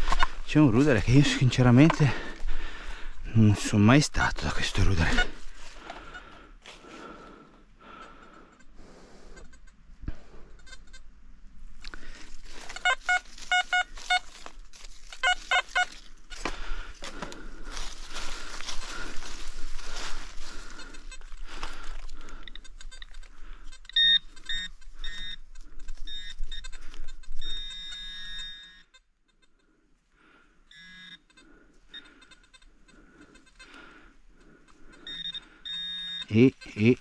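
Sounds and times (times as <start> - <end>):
metal detector beeps: 0.0 - 2.4, 3.4 - 5.4, 12.6 - 14.4, 15.1 - 16.1, 23.8 - 29.6, 30.7 - 33.8, 34.9 - 37.0.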